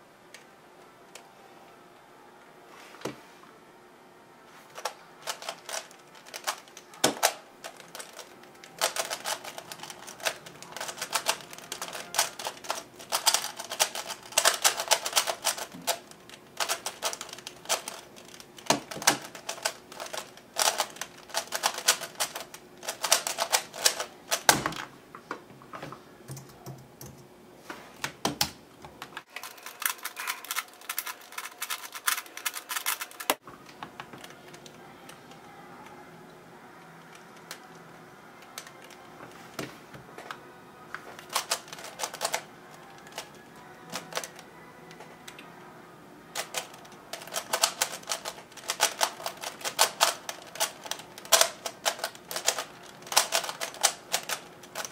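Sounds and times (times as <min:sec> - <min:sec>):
plastic puzzle cube clicking: 0:04.8 - 0:24.5, 0:41.2 - 0:43.3, 0:43.9 - 0:45.4, 0:46.4 - 0:54.9.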